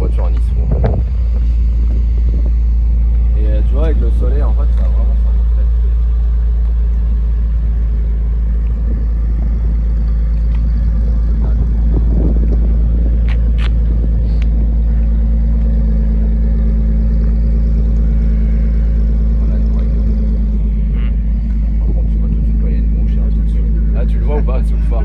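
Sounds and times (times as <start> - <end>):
car engine exhaust note: 0.0 - 25.0.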